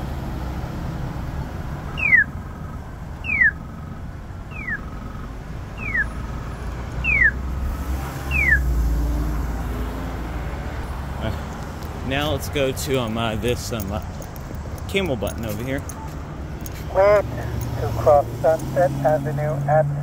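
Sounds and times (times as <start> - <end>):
traffic rumble: 0.0 - 20.0
pedestrian signal chirps: 1.9 - 2.4, 3.2 - 3.6, 4.4 - 5.0, 5.8 - 6.3, 7.0 - 7.4, 8.2 - 8.7.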